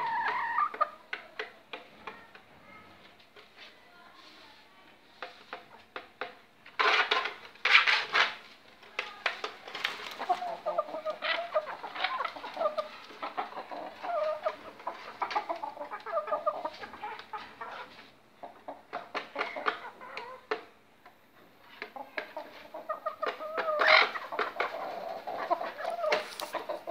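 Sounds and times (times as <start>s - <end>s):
hens clucking: 0.0s - 2.2s, 8.9s - 26.9s.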